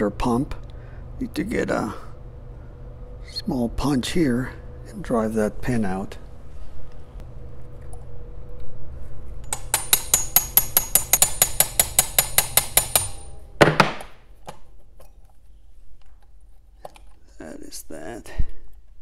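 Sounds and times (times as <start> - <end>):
hammer tapping steel punch: 9.4 - 14.1.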